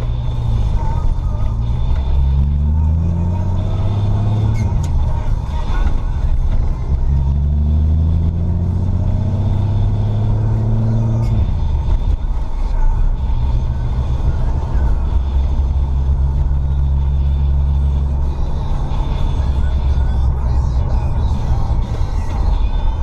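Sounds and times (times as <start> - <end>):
car engine accelerating: 0.0 - 23.0
road rumble: 0.0 - 23.0.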